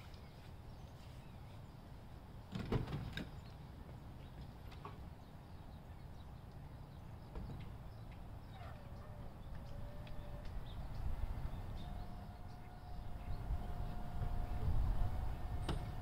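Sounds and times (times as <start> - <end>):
truck door opening and shutting: 2.5 - 3.3, 15.4 - 16.0.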